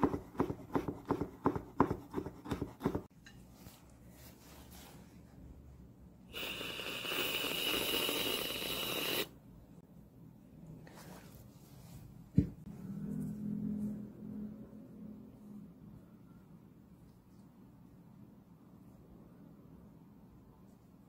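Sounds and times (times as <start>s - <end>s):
knife chopping on wooden board: 0.0s - 3.1s
aerosol can spraying: 6.3s - 9.3s.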